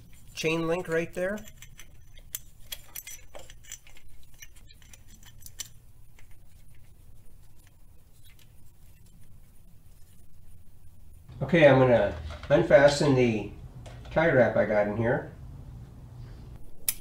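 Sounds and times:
metal chain links clinking: 0:00.5 - 0:05.8.

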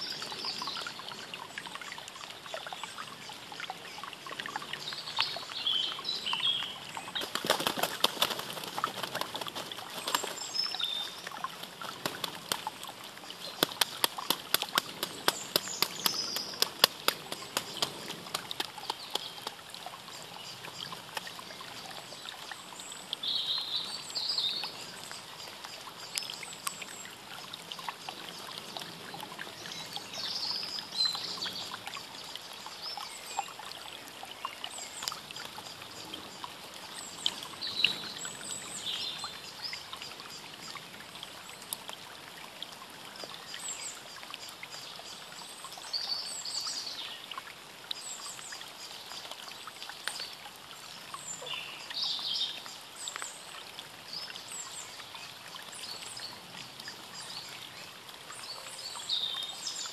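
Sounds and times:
small birds chirping: 0:02.6 - 0:27.2
wings flapping in dry leaves: 0:07.2 - 0:10.6, 0:11.5 - 0:12.8, 0:13.5 - 0:19.6.

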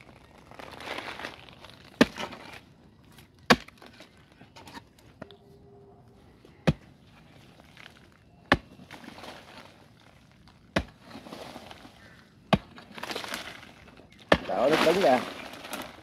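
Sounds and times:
loose soil crumbling: 0:00.0 - 0:05.4, 0:06.5 - 0:16.0
digging tool striking hard earth: 0:01.0 - 0:02.6, 0:03.5 - 0:04.0, 0:08.5 - 0:09.8, 0:10.6 - 0:16.0.

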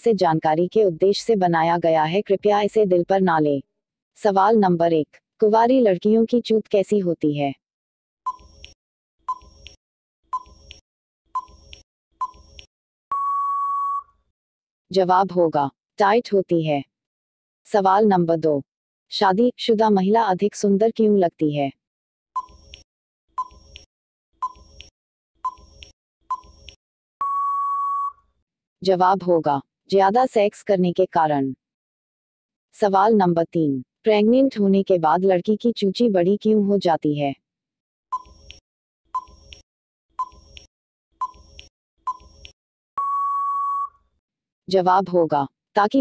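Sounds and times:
short timer beeps: 0:08.3 - 0:08.7, 0:10.4 - 0:10.7, 0:11.4 - 0:12.4, 0:13.1 - 0:14.1, 0:23.4 - 0:23.8, 0:24.4 - 0:28.2, 0:39.2 - 0:39.6, 0:40.2 - 0:40.6, 0:41.2 - 0:41.4, 0:42.1 - 0:42.4, 0:43.0 - 0:44.0
long steady beep: 0:13.1 - 0:14.1, 0:27.2 - 0:28.2, 0:43.0 - 0:44.0.

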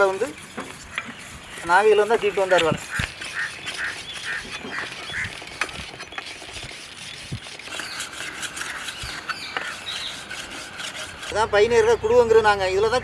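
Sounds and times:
blade scraping on sharpening block: 0:07.7 - 0:11.4.

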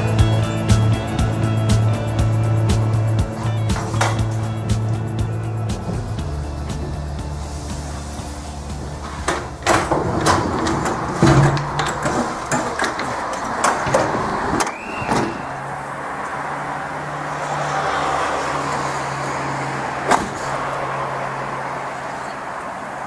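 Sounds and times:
train low hum: 0:00.0 - 0:23.0
rattling and sharp knocks: 0:03.4 - 0:15.5.

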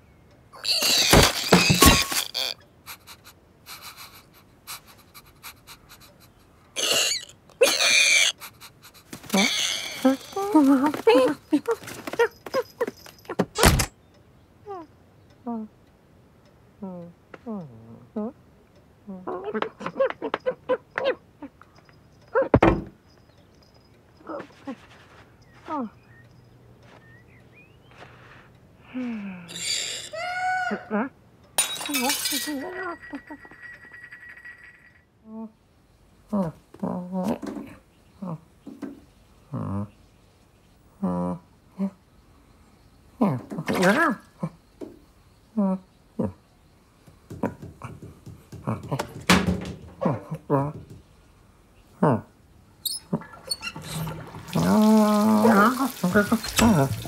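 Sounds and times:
breathy hiss: 0:02.9 - 0:07.2, 0:08.2 - 0:10.1
faint squeaks: 0:06.8 - 0:13.4, 0:19.2 - 0:30.8, 0:52.8 - 0:54.2
light ticks and scratches: 0:23.1 - 0:27.2.

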